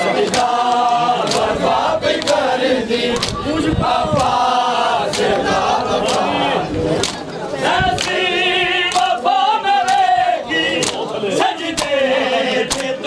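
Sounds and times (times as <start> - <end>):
crowd of men chanting: 0.0 - 13.0
hands slapping bare chests: 0.3 - 2.5, 3.1 - 3.4, 4.2 - 4.4, 5.0 - 5.4, 6.0 - 6.3, 7.0 - 7.2, 7.9 - 8.2, 8.9 - 9.2, 9.8 - 10.1, 10.8 - 12.0, 12.6 - 13.0.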